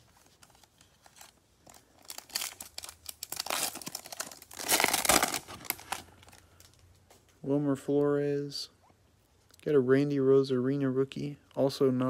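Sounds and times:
foil wrapper crinkling and tearing: 0.0s - 6.8s.

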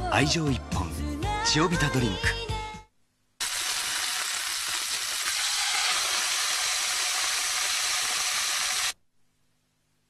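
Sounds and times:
food sizzling in hot oil: 3.4s - 9.0s.

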